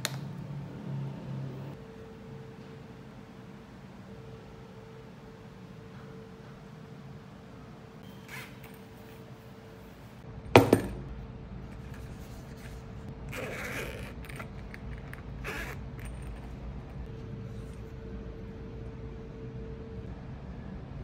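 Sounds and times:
knock on hard case: 0:10.6 - 0:11.0
case scraping and rustling: 0:11.8 - 0:17.1.

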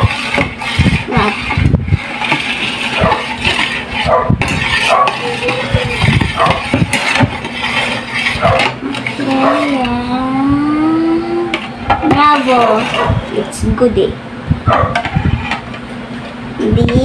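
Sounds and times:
metal spoon scraping a pot: 0:00.0 - 0:10.1, 0:11.4 - 0:13.6, 0:14.9 - 0:15.8.

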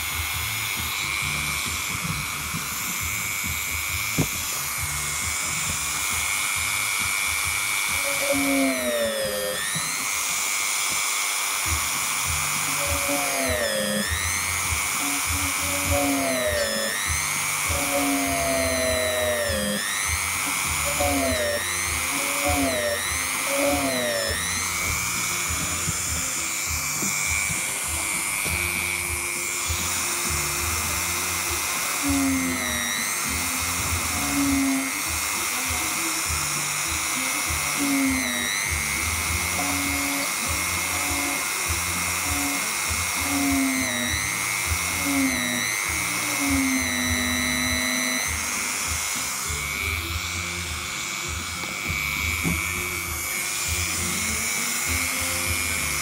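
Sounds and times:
small motor whining: 0:00.0 - 0:56.0.

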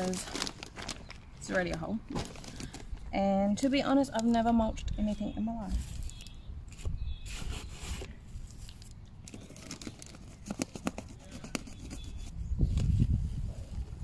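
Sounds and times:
bag crinkling crackles: 0:00.0 - 0:03.1, 0:08.4 - 0:11.0
bag ripping open: 0:09.3 - 0:10.7.

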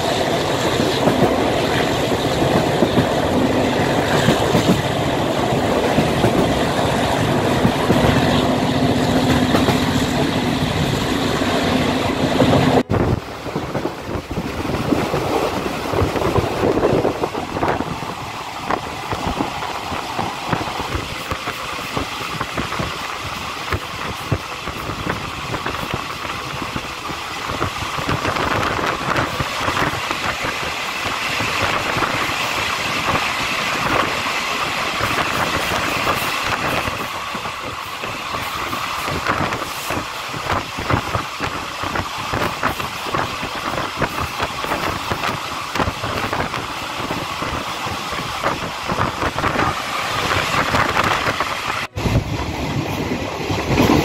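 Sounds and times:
rushing air: 0:00.0 - 0:54.0
train rail noise: 0:00.0 - 0:54.0.

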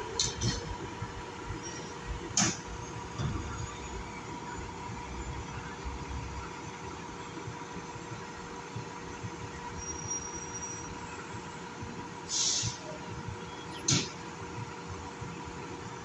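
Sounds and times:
brief high hiss: 0:12.3 - 0:13.0.

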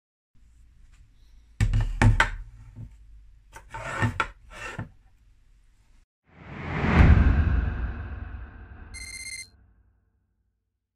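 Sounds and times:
rising whoosh: 0:06.3 - 0:09.0.

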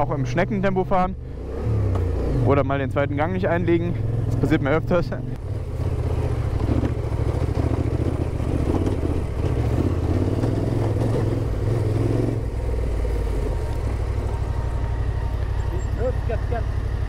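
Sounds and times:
motorcycle engine running: 0:00.0 - 0:17.0
gravel clatter: 0:03.2 - 0:16.6.

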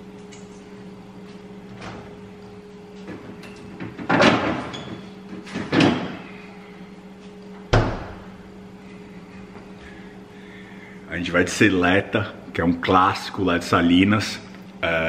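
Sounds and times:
steady low hum: 0:00.0 - 0:15.0
fridge door opening: 0:03.0 - 0:06.3
fridge door shutting with a thud: 0:03.8 - 0:06.2, 0:07.7 - 0:08.3.

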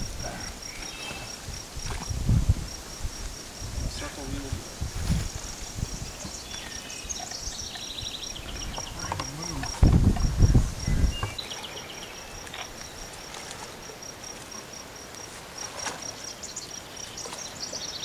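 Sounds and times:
low rumble on microphone: 0:00.0 - 0:06.4, 0:08.4 - 0:11.4
descending insect trills: 0:00.0 - 0:18.0
insects chirping: 0:00.0 - 0:18.0.

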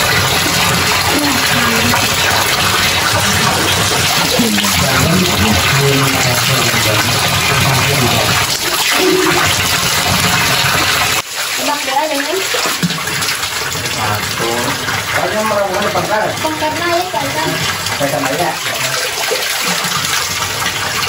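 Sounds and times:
water pouring and splashing on rock: 0:00.0 - 0:21.0.

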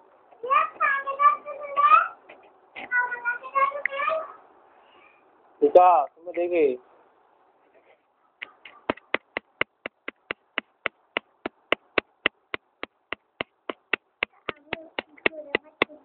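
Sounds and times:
rapid tapping clicks: 0:08.4 - 0:16.0.

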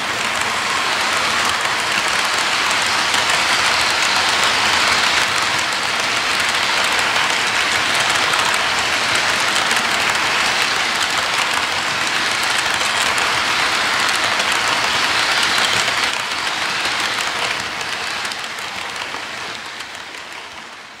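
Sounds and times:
model train wheels on rails: 0:00.0 - 0:21.0.

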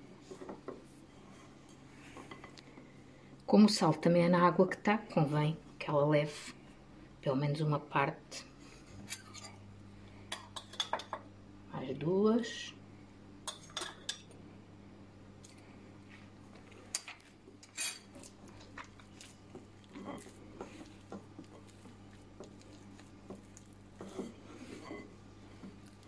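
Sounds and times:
hands mixing pastry dough: 0:15.4 - 0:26.0.

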